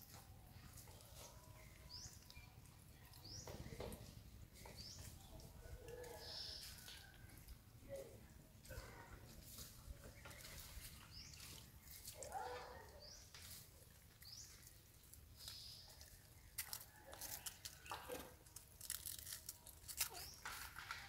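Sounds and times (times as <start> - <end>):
rustling in dry leaves: 4.8 - 21.0.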